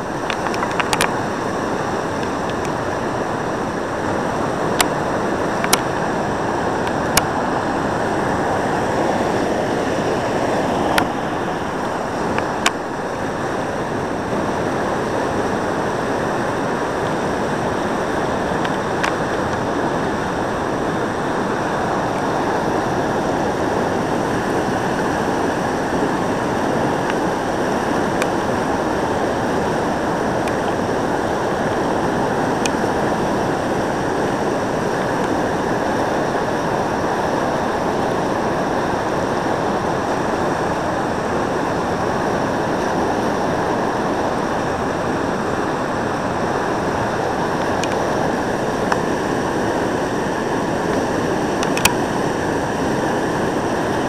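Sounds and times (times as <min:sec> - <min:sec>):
whitewater rushing over ledge: 0:00.0 - 0:54.0.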